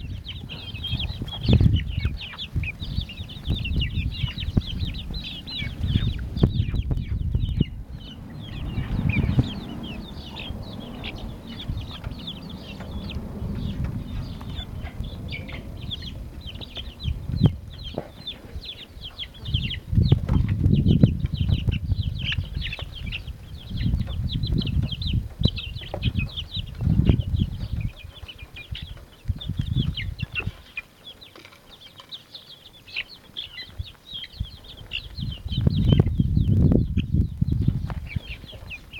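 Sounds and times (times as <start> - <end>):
low rumble: 0.0 - 28.0
chicks peeping: 0.0 - 38.9.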